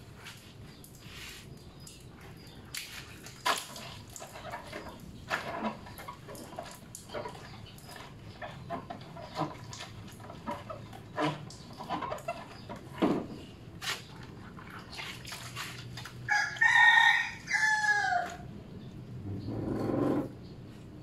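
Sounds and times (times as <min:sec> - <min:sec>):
rubbing and splashing while washing: 0:00.0 - 0:18.4
rooster crowing: 0:16.3 - 0:18.4.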